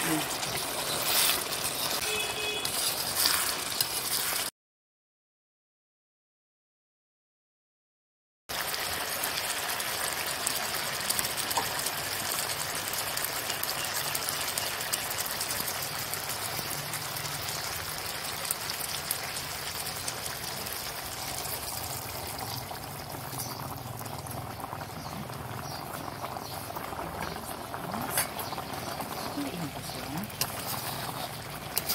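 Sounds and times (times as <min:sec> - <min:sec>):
food sizzling in a metal pan: 0:00.0 - 0:04.5, 0:08.5 - 0:31.9
spatula stirring: 0:00.0 - 0:04.5, 0:21.0 - 0:31.9.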